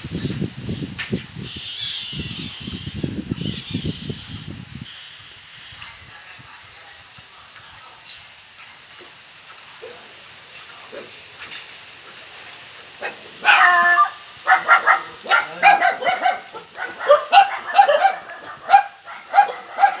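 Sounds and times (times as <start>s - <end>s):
dog yelping and whining: 13.4s - 20.0s.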